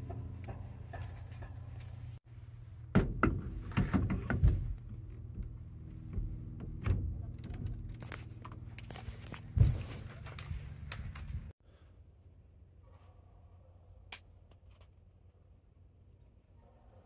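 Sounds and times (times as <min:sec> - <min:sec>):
steering wheel knocks and thuds: 0:02.9 - 0:08.0.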